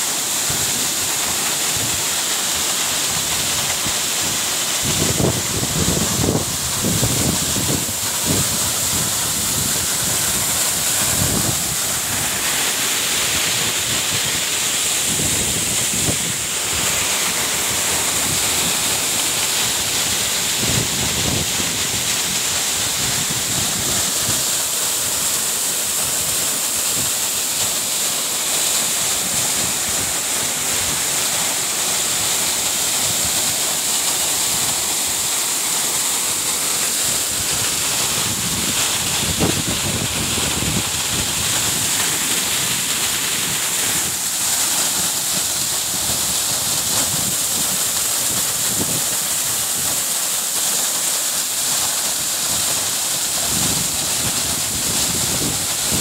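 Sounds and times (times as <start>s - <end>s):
waterfall rushing: 0.0s - 56.0s
wind buffeting microphone: 37.4s - 42.0s.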